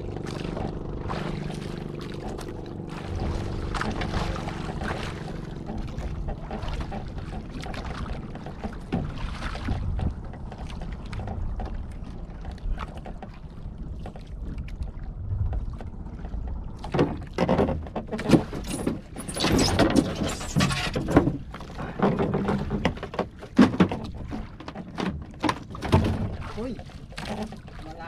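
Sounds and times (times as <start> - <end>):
low rumble: 0.0 - 17.4
water splashing against boat hull: 0.0 - 28.0.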